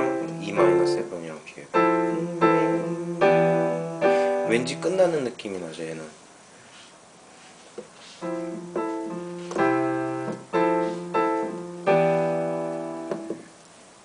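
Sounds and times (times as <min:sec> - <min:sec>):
piano chord progression: 0:00.0 - 0:05.3, 0:08.2 - 0:13.6.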